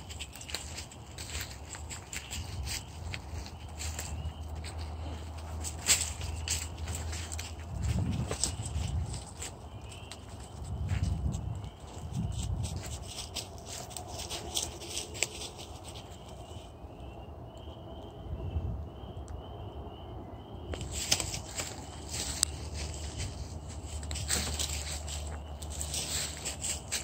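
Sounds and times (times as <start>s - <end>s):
rustling and sharp clicks: 20.8s - 27.0s.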